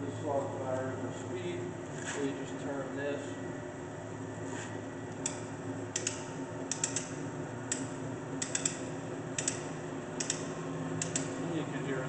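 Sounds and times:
sharp metallic ticks: 0:06.0 - 0:07.1, 0:07.7 - 0:08.8, 0:09.4 - 0:09.6, 0:10.2 - 0:11.3.

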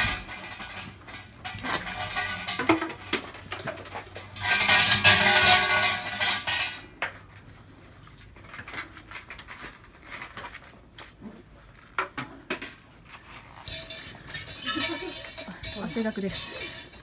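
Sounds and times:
shrine bell jangling: 0:13.7 - 0:17.0.

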